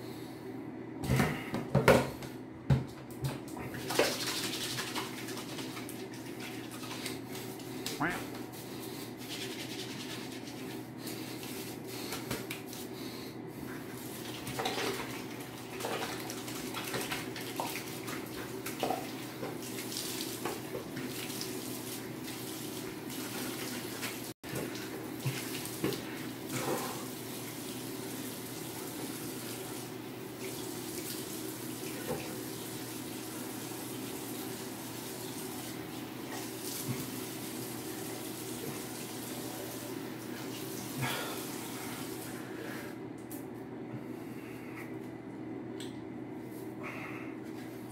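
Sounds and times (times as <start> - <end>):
hands rubbing and splashing: 3.7 - 13.0.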